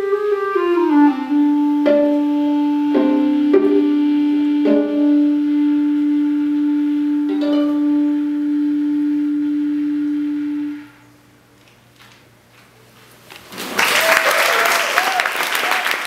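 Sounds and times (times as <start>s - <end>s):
clarinet and viola chord: 0.0s - 11.1s
audience applause: 13.5s - 16.0s.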